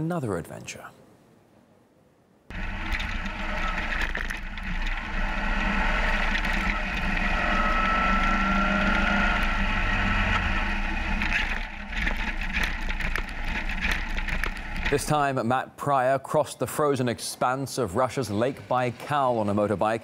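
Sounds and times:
motorcycle engine running: 2.5 - 15.2.

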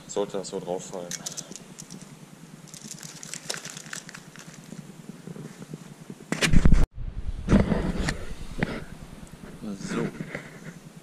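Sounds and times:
small metallic clicks: 0.9 - 2.1
plastic packaging rustling: 1.1 - 4.9.

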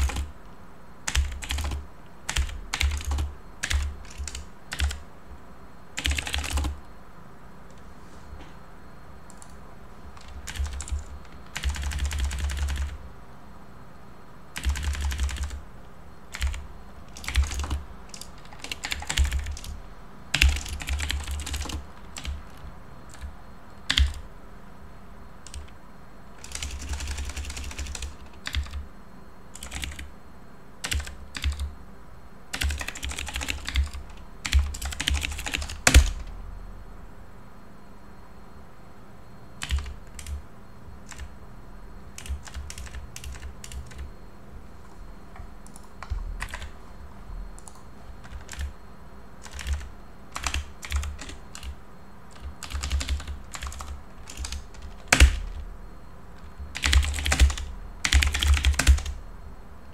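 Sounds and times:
typing on computer keyboard: 0.0 - 0.4, 1.1 - 5.0, 6.0 - 6.8, 9.3 - 13.0, 14.6 - 15.6, 16.3 - 24.3, 25.4 - 25.8, 26.4 - 28.8, 29.5 - 30.1, 30.8 - 31.7, 32.5 - 36.3, 39.6 - 40.4, 41.0 - 41.3, 42.1 - 44.1, 45.4 - 46.8, 47.6 - 48.7, 49.4 - 55.6, 56.4 - 59.2.

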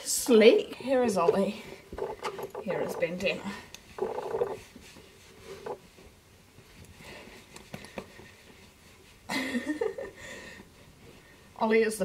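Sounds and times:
person speaking: 2.0 - 4.6.

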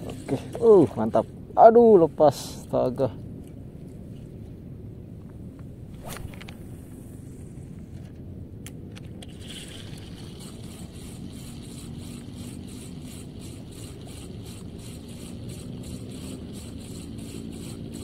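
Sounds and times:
spinning reel ticking: 9.3 - 18.0.

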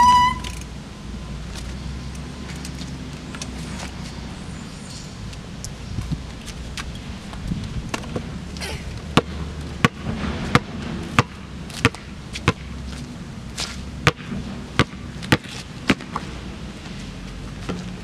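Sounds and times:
basketball bouncing on asphalt: 6.0 - 8.4, 9.0 - 13.0, 13.6 - 16.4.

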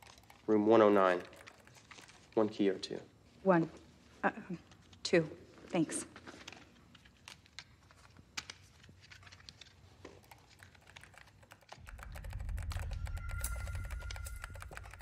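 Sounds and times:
typing on keyboard: 0.0 - 2.2, 8.4 - 15.0
low rumble: 11.8 - 15.0
steady high beep: 11.9 - 15.0.

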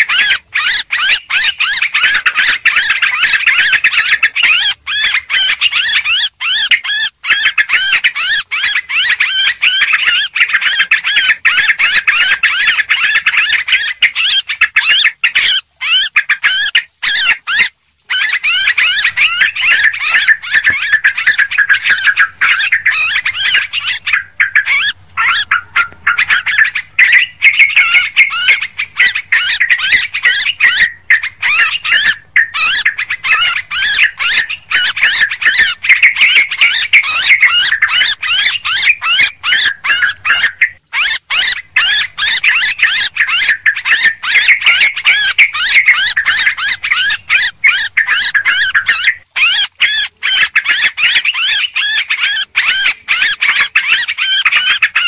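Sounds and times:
flock of birds chattering: 0.0 - 55.0.

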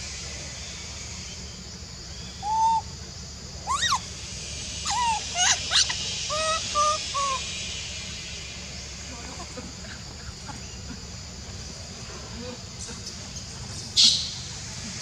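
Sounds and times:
steady high hiss: 0.0 - 15.0
clear-pitched animal calls: 3.7 - 4.0, 4.8 - 7.5.

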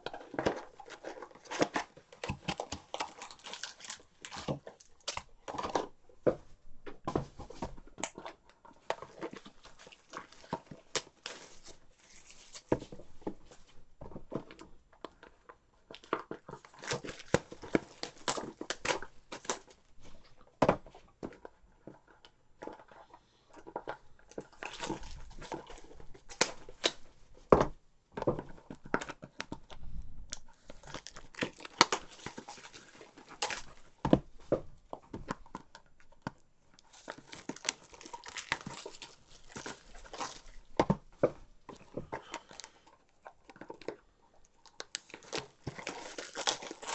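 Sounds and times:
wrappers tearing and crinkling: 0.2 - 5.3, 9.0 - 12.8, 16.6 - 19.8, 24.4 - 27.0, 30.6 - 34.0, 36.8 - 40.8, 41.7 - 42.8, 44.6 - 46.9.

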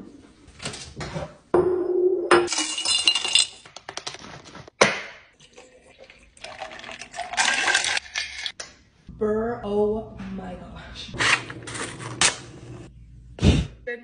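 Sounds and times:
coffee pouring over ice: 5.4 - 8.5.

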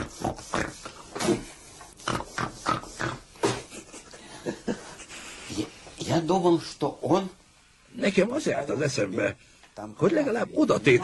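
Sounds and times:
man imitating hawking and spitting: 0.0 - 3.9.

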